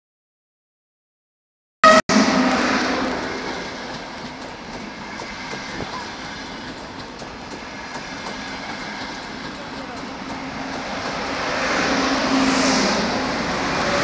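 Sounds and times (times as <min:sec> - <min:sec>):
short pitched note: 0:01.8 - 0:03.8
electric train passing: 0:01.8 - 0:14.0.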